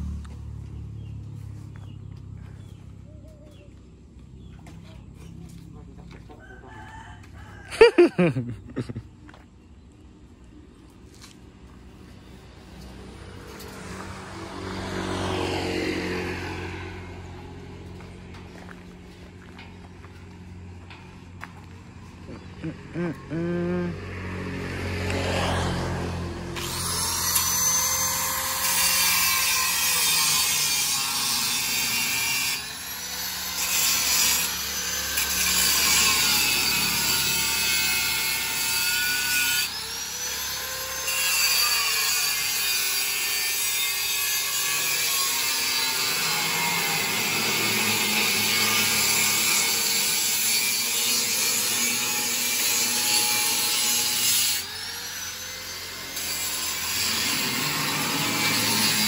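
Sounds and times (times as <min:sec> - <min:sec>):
angle grinder grinding steel: 0:11.2 - 0:18.1, 0:26.2 - 0:59.0.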